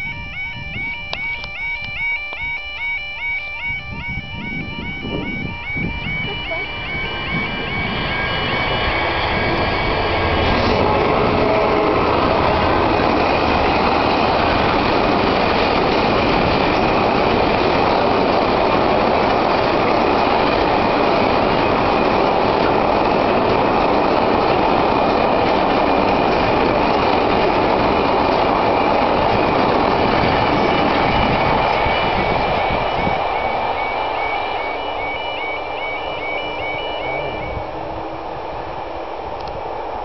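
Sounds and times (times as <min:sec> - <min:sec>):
freight train wheels rumbling: 0:03.9 - 0:40.0.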